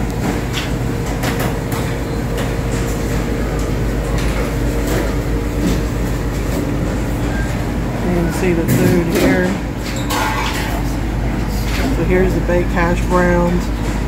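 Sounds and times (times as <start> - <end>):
steady low hum: 0.0 - 14.0
dishes and cutlery clinking: 8.7 - 10.9.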